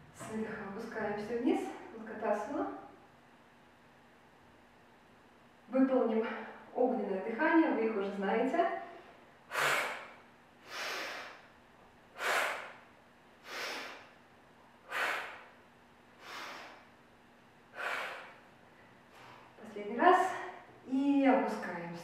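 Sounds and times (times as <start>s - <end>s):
woman breathing forcefully: 8.8s - 14.2s, 14.8s - 15.6s, 16.2s - 17.0s, 17.7s - 18.5s.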